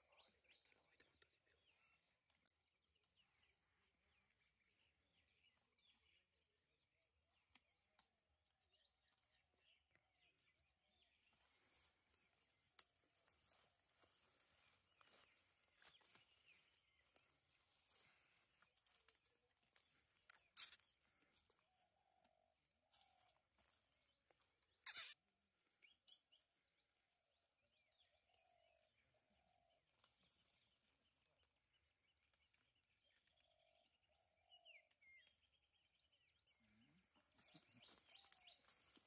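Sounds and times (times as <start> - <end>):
faint bird chirps: 13.2 - 26.4, 27.4 - 39.0.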